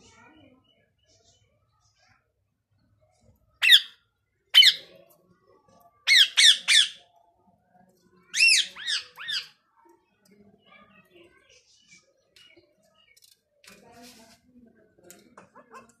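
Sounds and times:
parakeet calls: 3.6 - 4.0, 4.6 - 4.8, 6.1 - 7.0, 8.4 - 9.5.

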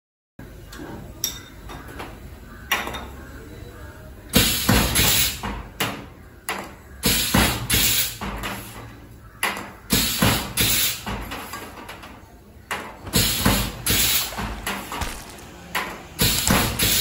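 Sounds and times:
compressed air hissing: 13.2 - 15.0, 16.2 - 17.0.

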